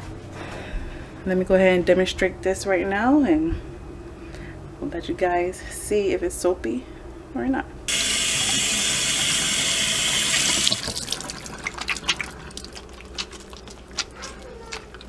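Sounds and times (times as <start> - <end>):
faucet running into steel sink: 7.9 - 12.7
wet hands rubbing soap: 10.5 - 15.0.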